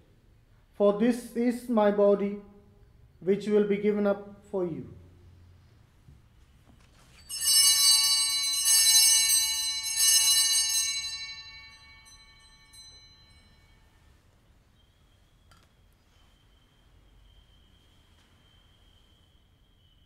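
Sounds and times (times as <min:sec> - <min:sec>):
small bells ringing: 0:07.0 - 0:14.5.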